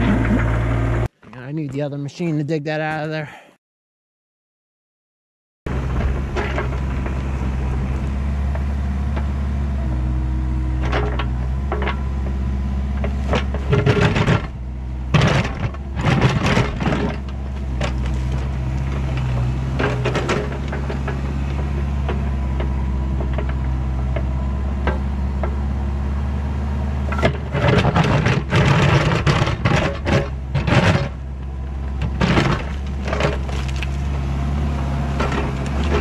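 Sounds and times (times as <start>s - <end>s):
bucket scraping and clanking: 0.0s - 1.1s, 5.8s - 8.0s, 13.0s - 23.6s, 27.1s - 31.2s, 31.9s - 34.2s, 35.0s - 36.0s
excavator diesel engine running: 0.0s - 1.1s, 5.7s - 36.0s.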